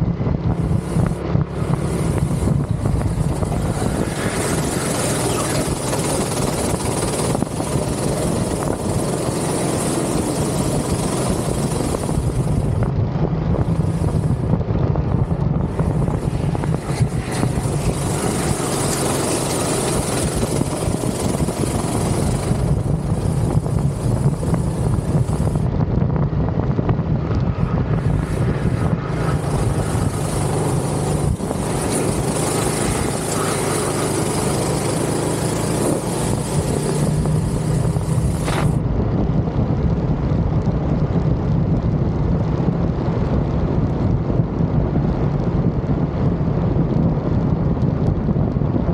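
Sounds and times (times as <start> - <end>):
go-kart engine buzzing: 0.0 - 25.7, 27.5 - 38.8.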